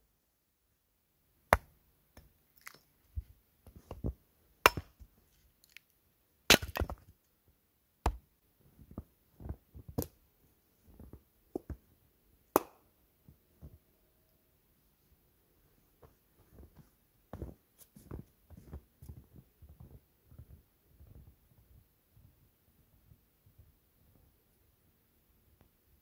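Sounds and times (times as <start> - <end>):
hatchet chopping wood: 4.6 - 5.0, 6.5 - 7.0.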